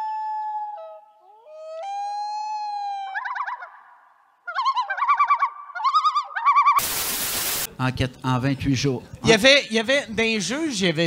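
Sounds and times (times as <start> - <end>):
loon wailing call: 0.0 - 6.8.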